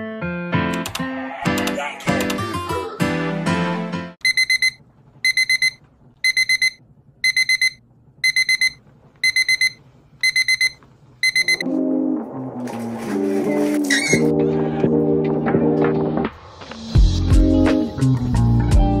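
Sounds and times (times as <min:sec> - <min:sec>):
music: 0:00.0 - 0:04.2, 0:11.6 - 0:19.0
digital alarm beeping: 0:04.2 - 0:11.6.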